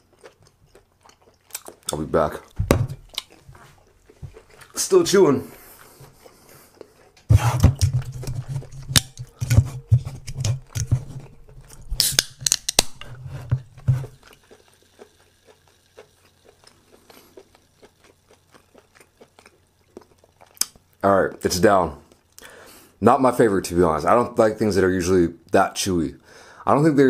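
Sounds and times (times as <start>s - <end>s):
person chewing food: 0.0s - 22.8s
soda can being handled: 7.4s - 14.2s.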